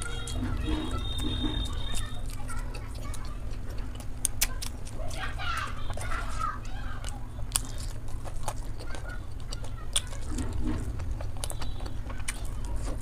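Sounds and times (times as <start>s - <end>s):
chewing with mouth closed: 0.0s - 13.0s
steady low hum: 0.0s - 13.0s
mouth clicks and smacks: 0.3s - 5.2s.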